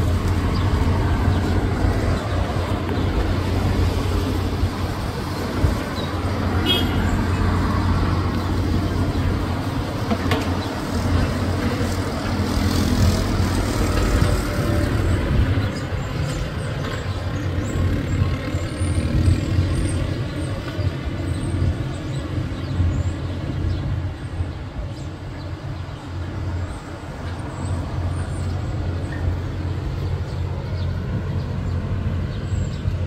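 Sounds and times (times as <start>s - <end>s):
large vehicle engine rumble: 0.0s - 33.0s
road traffic noise: 0.0s - 33.0s.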